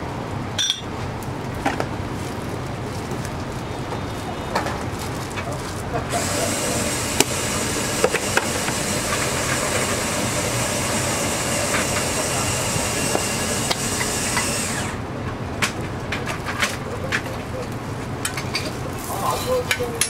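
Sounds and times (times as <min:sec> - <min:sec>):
food sizzling on a griddle: 0:06.2 - 0:09.7.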